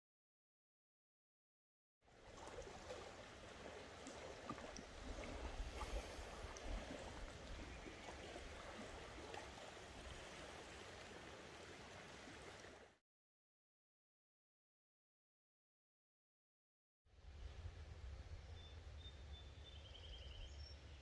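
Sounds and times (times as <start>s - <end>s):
running water rushing: 2.1s - 13.0s.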